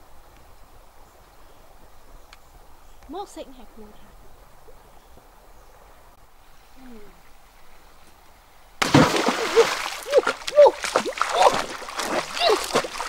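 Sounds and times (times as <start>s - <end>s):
loud water splash: 8.8s - 13.0s
person exclaiming: 9.4s - 11.7s, 12.3s - 12.8s.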